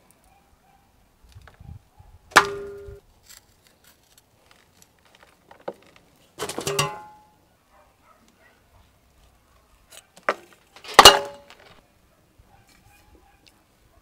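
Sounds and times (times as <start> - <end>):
knocks ringing a metal basin: 6.6 - 7.2.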